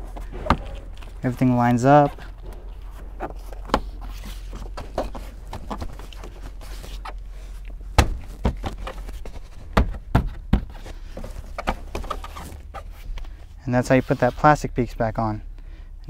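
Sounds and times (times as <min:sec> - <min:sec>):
plastic trim knocks and thunks: 0:00.1 - 0:01.2, 0:04.5 - 0:06.4, 0:07.9 - 0:12.4.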